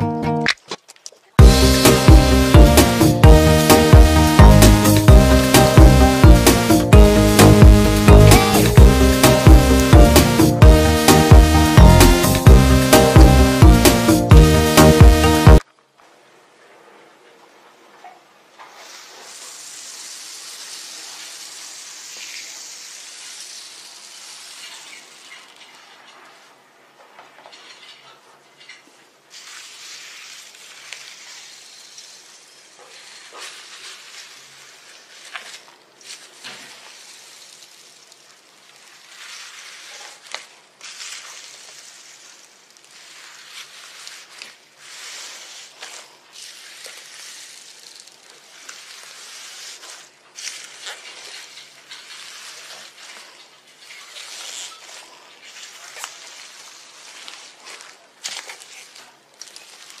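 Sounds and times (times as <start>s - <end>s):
slime squelching by hand: 29.3s - 60.0s.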